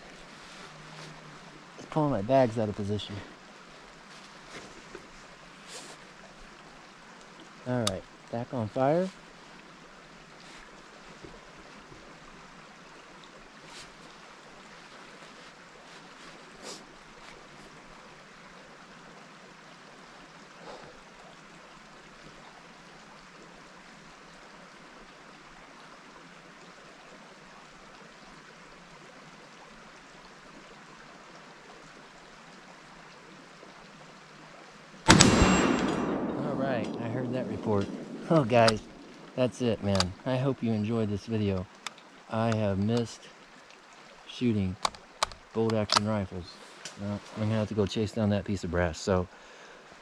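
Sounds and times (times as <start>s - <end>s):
outdoor background hiss: 0.0s - 50.0s
small clicks and knocks: 44.8s - 46.2s.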